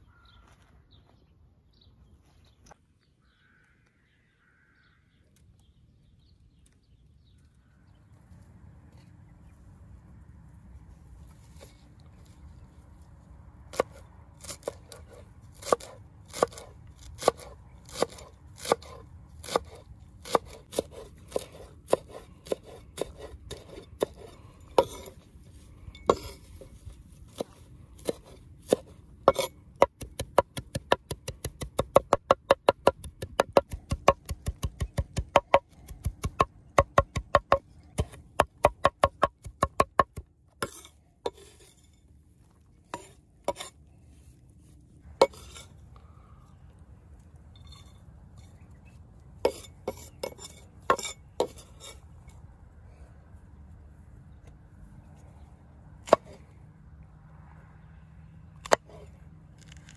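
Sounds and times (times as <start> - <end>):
cleaver chopping on wooden board: 27.4 - 40.3.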